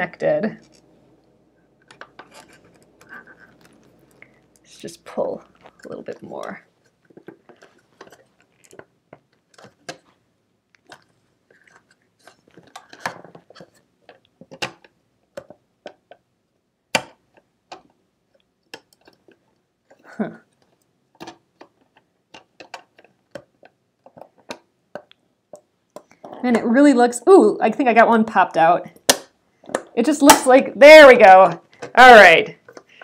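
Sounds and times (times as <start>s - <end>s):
fingers clicking and scraping parts: 17.0s - 26.6s.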